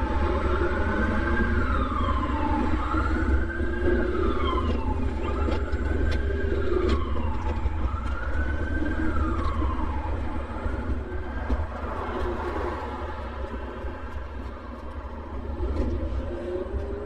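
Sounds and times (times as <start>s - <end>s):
emergency siren wailing: 0.0s - 17.0s
street traffic rumble: 0.0s - 17.0s.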